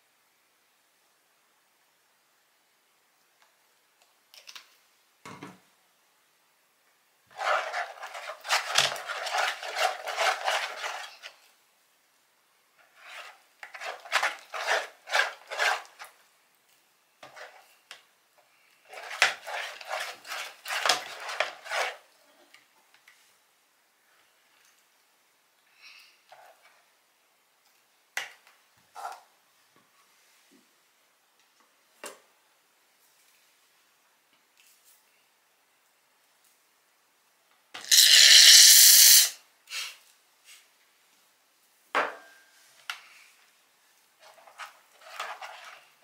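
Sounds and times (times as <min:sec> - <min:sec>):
utensil scraping in a bowl: 0:07.3 - 0:11.5, 0:12.8 - 0:16.2, 0:17.2 - 0:17.8, 0:18.9 - 0:22.1, 0:37.8 - 0:39.3, 0:44.2 - 0:46.0.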